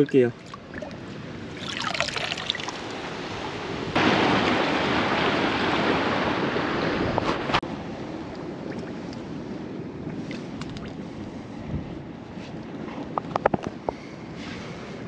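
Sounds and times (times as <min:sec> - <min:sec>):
sea surf: 0:00.0 - 0:12.5
wind noise on microphone: 0:05.7 - 0:15.0.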